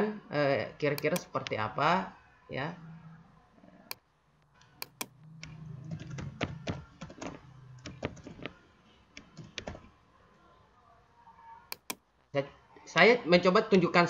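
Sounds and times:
computer keyboard key clicks: 0:04.8 - 0:05.1, 0:11.7 - 0:12.0.

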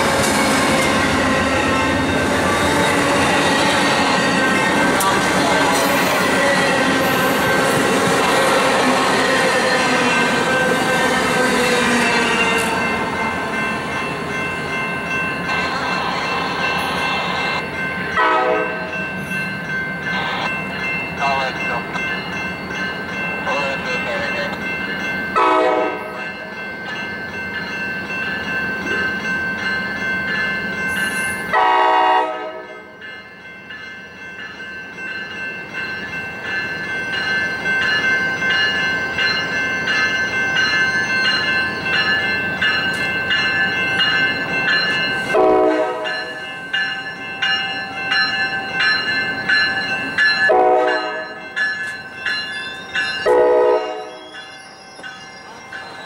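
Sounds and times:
railroad crossing bell ringing: 0:00.0 - 0:56.0
train horn blasts: 0:18.2 - 0:18.8, 0:25.4 - 0:26.2, 0:31.5 - 0:32.8, 0:45.4 - 0:46.1, 0:50.5 - 0:51.3, 0:53.3 - 0:54.2.

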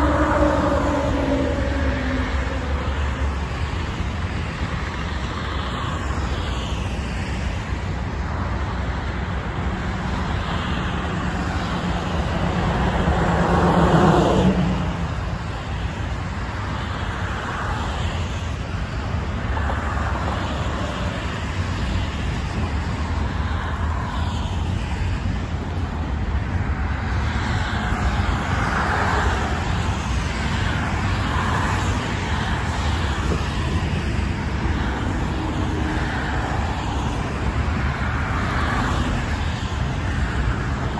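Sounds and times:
loud vehicle passing close: 0:00.0 - 0:04.6, 0:10.8 - 0:16.0
highway traffic: 0:00.0 - 0:40.9.

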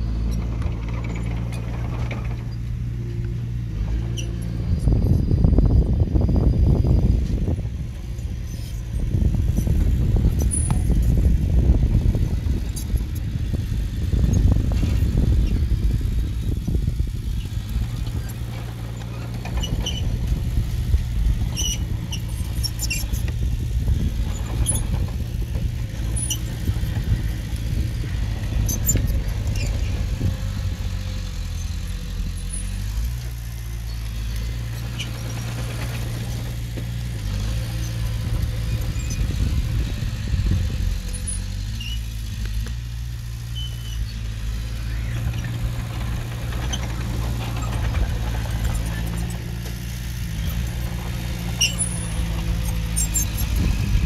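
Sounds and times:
heavy diesel machinery droning: 0:00.0 - 0:54.0
metal squeaks and clicks: 0:00.2 - 0:02.8, 0:03.8 - 0:05.0, 0:08.3 - 0:11.2, 0:18.0 - 0:20.4, 0:21.4 - 0:23.4, 0:24.0 - 0:30.2, 0:33.9 - 0:39.5, 0:41.1 - 0:42.5, 0:43.5 - 0:54.0.

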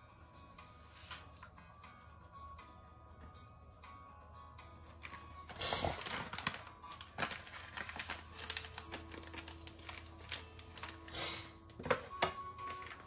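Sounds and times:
foil packet crinkling: 0:05.0 - 0:11.2, 0:12.6 - 0:13.0.

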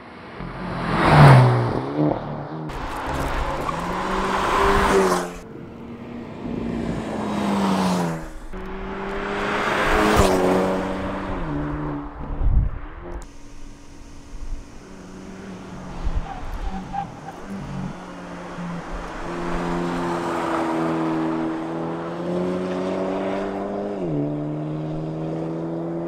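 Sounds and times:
car engine accelerating hard: 0:00.4 - 0:26.0.

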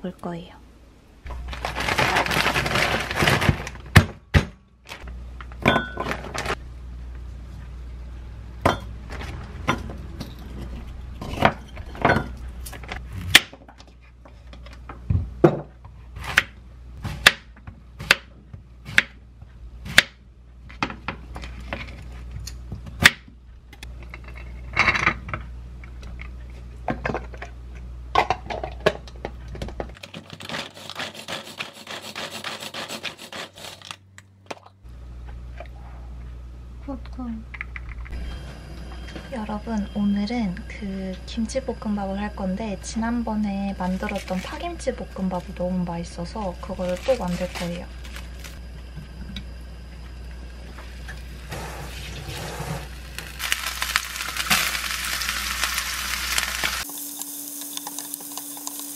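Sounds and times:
plastic bag rustling: 0:01.3 - 0:04.0, 0:46.8 - 0:48.6, 0:51.8 - 0:56.8
manual food chopper whirring: 0:52.4 - 0:58.9.

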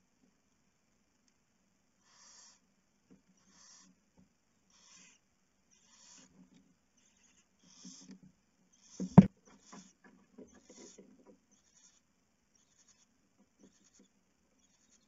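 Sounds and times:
owl hissing: 0:02.0 - 0:02.6, 0:03.4 - 0:04.0, 0:04.7 - 0:06.3, 0:07.0 - 0:08.1, 0:08.7 - 0:10.0, 0:10.6 - 0:15.0.

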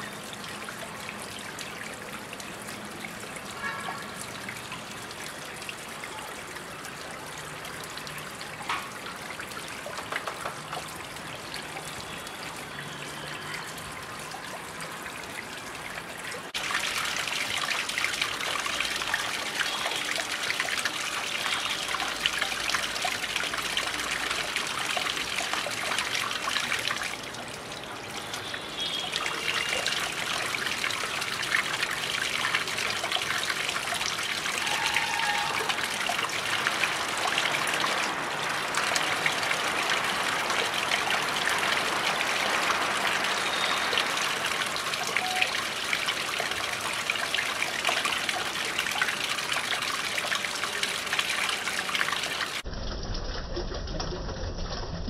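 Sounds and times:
water trickling over stones: 0:00.0 - 0:55.0.

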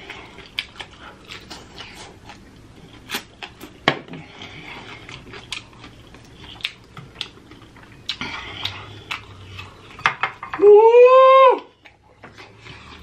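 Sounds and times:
chewing and wet lip smacking: 0:00.0 - 0:10.0.

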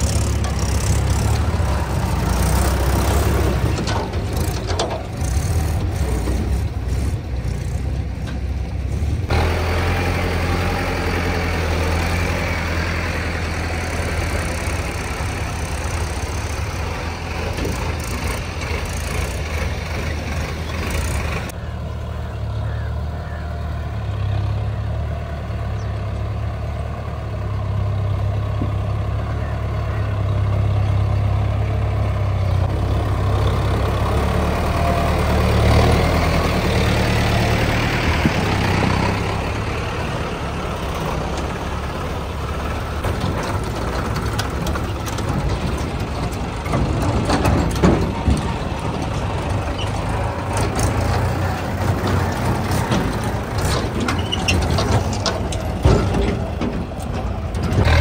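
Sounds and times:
clanks and rattles: 0:00.0 - 0:09.4, 0:11.1 - 0:21.6, 0:40.7 - 0:58.0
diesel tractor engine running: 0:00.0 - 0:58.0.

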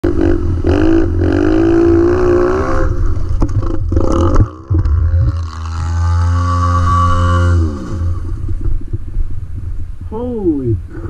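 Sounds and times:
dirt bike engine revving: 0:00.0 - 0:08.6.

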